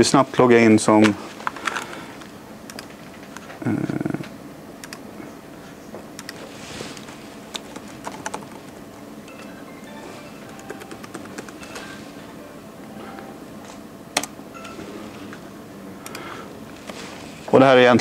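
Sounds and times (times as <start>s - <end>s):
laptop keyboard typing: 2.7s - 3.0s, 4.8s - 5.0s, 6.2s - 6.4s, 7.5s - 13.3s.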